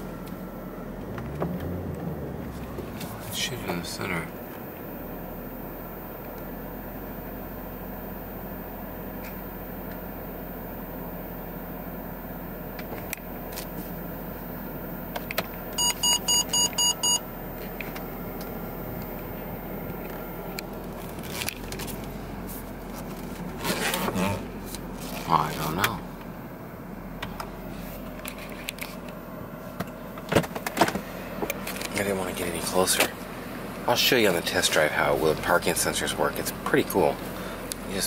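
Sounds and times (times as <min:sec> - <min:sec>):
car cabin hum: 0:00.0 - 0:38.0
parking sensor beeps: 0:15.8 - 0:17.3.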